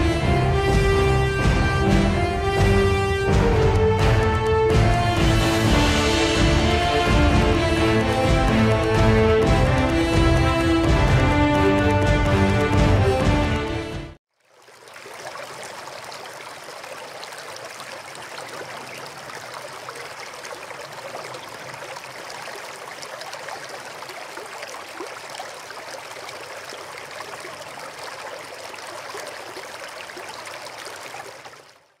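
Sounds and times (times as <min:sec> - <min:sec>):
running water trickling: 0:14.3 - 0:32.0.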